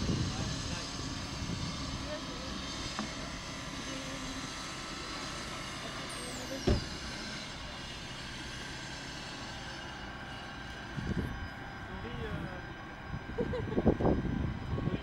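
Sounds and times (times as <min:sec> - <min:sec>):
faint high whines: 0:00.0 - 0:15.0
tram rolling hum: 0:00.0 - 0:15.0
low thump: 0:06.6 - 0:07.0.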